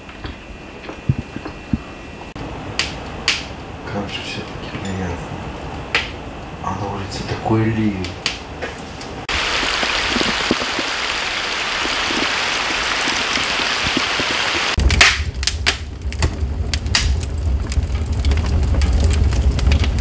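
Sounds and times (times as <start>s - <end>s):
wood fire crackling: 0.0s - 20.0s
heavy rain on a pond: 9.3s - 20.0s.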